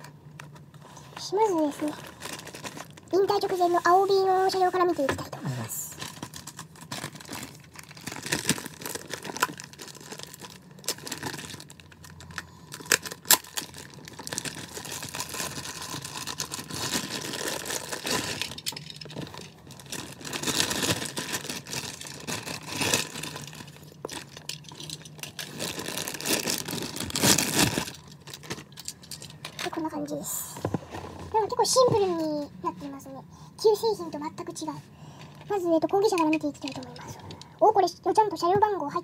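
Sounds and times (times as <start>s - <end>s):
plastic wrapping crinkling: 0.0s - 4.8s, 5.9s - 29.8s.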